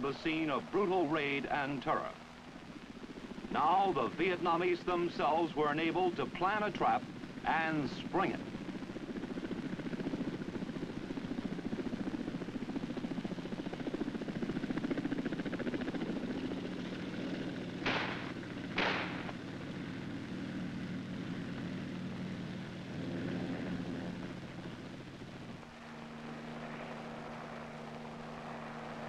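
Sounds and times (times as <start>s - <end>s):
helicopter rotor chopping: 0.0s - 29.0s
sharp bangs: 17.8s - 19.3s.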